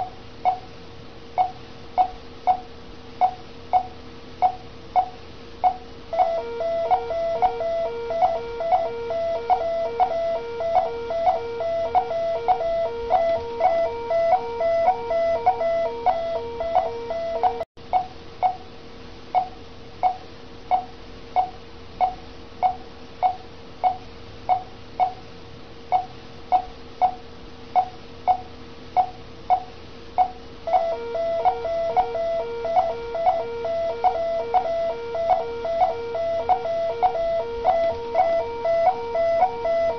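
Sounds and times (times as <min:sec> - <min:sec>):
patient monitor beeping: 0:03.2 - 0:17.7, 0:30.2 - 0:39.9
repeating alarm tone: 0:06.1 - 0:17.6, 0:30.7 - 0:39.9.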